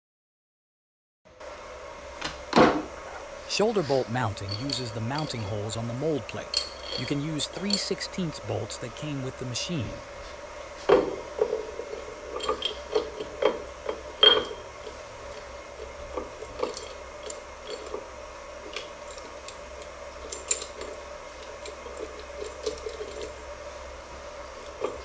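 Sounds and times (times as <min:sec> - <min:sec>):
faint machine hum: 0:01.3 - 0:25.0
metal parts clinking and knocking: 0:03.8 - 0:07.8, 0:10.9 - 0:15.4, 0:16.0 - 0:18.0, 0:18.6 - 0:23.4.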